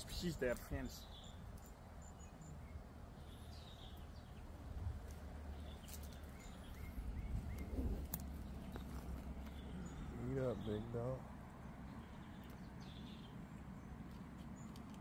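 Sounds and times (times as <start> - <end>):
low rumble: 6.5 - 10.2
sharp clicks: 14.1 - 15.0.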